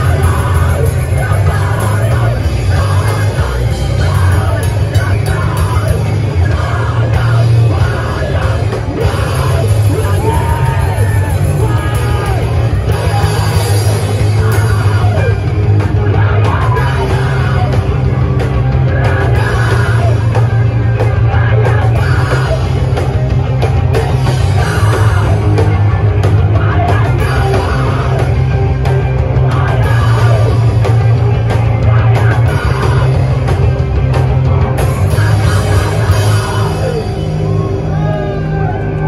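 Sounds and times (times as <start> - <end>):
live rock band: 0.0 - 39.0
person shouting vocals: 6.6 - 15.3.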